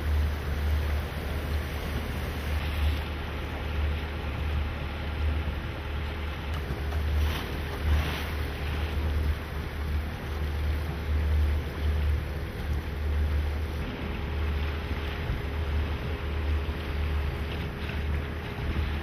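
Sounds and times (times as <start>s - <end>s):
motor boat engine drone: 0.0s - 19.0s
water noise: 0.0s - 19.0s.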